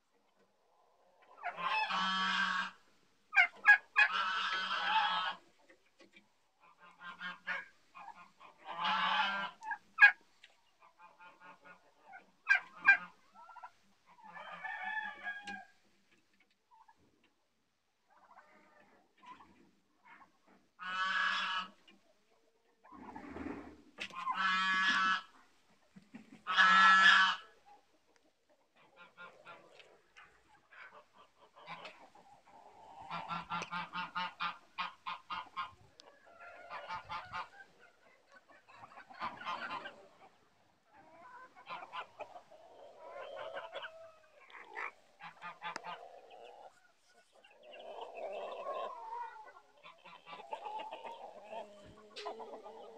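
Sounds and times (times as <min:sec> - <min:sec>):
poultry clucking: 0:00.0 - 0:52.9
geese honking: 0:01.4 - 0:05.4, 0:06.7 - 0:10.2, 0:20.8 - 0:21.8, 0:24.0 - 0:25.3, 0:26.4 - 0:27.6, 0:30.6 - 0:40.4, 0:41.1 - 0:52.9.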